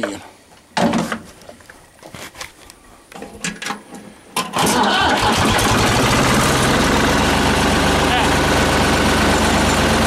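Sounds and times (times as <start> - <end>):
tractor engine starting and idling: 4.4 - 10.0.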